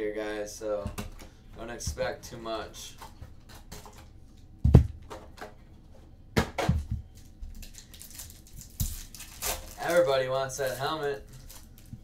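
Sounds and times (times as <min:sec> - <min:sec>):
knocks on cardboard box: 0:04.6 - 0:05.0
packaging rustling: 0:07.2 - 0:12.0.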